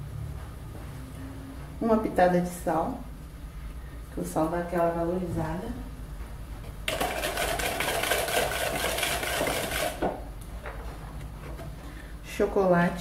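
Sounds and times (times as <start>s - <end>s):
wire whisk rattling in a bowl: 6.9s - 10.1s.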